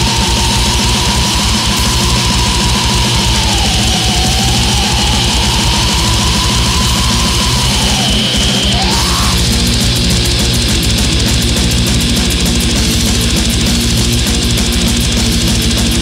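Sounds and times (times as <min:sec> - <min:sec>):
high pitched sweeping line: 0:00.0 - 0:10.4
black metal music: 0:00.0 - 0:16.0.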